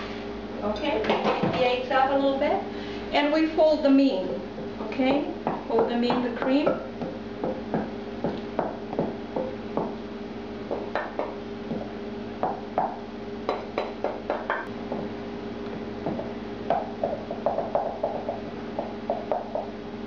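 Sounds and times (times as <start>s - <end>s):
steady background hum: 0.0s - 20.0s
stirring taps: 4.5s - 10.0s.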